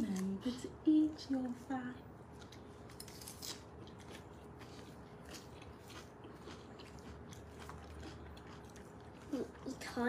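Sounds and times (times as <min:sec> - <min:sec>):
person chewing crisp lettuce: 0:02.2 - 0:10.0.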